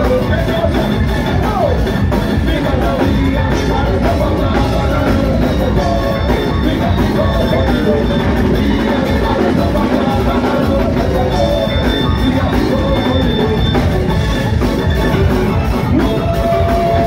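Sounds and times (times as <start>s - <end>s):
soca band music over sound system: 0.0s - 17.0s.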